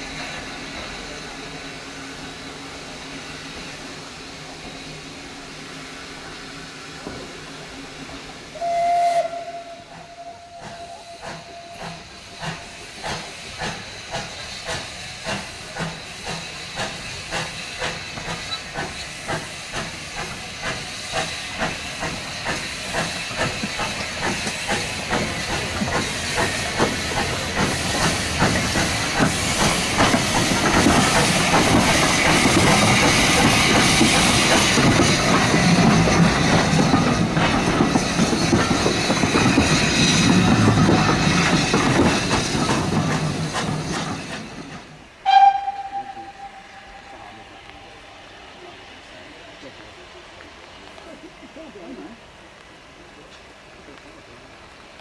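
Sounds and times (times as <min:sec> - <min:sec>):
steam locomotive exhaust beats: 0:00.0 - 0:55.0
steam locomotive whistle: 0:08.5 - 0:12.6, 0:45.2 - 0:48.2.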